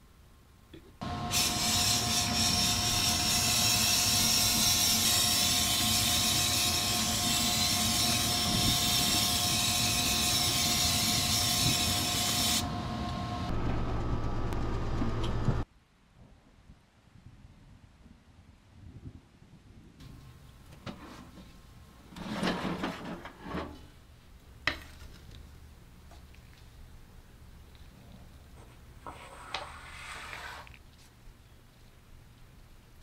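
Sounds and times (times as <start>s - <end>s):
whining tones: 1.0s - 15.6s
low hum: 12.6s - 15.7s.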